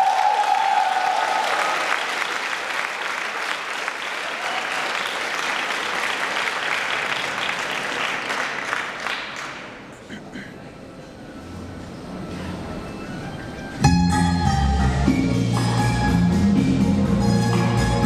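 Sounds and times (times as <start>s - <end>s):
audience applauding: 0.0s - 10.1s.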